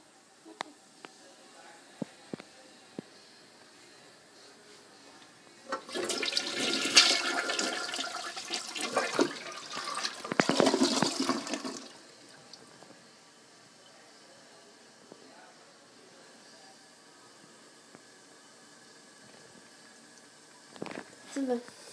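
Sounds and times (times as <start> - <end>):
toilet flushing: 5.7 - 12.0.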